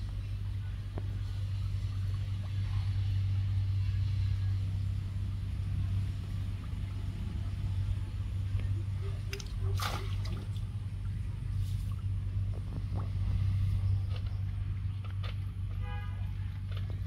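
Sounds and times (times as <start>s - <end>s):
low rumble: 0.0s - 17.0s
water splashing from net: 9.2s - 10.9s.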